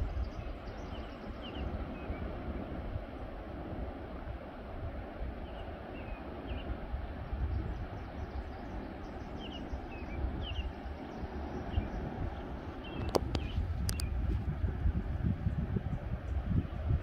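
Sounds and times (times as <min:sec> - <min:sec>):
ocean surf: 0:00.0 - 0:13.8
wind on microphone: 0:00.0 - 0:17.0
small birds chirping: 0:07.5 - 0:14.2.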